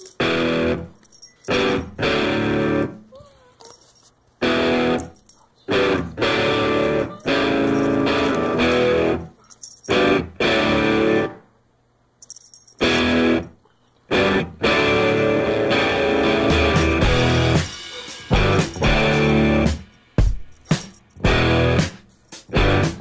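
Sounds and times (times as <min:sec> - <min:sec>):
guitar music: 0:00.2 - 0:00.9, 0:01.5 - 0:03.0, 0:04.4 - 0:05.1, 0:05.7 - 0:09.3, 0:09.9 - 0:11.4, 0:12.8 - 0:13.5, 0:14.1 - 0:19.8, 0:21.2 - 0:23.0.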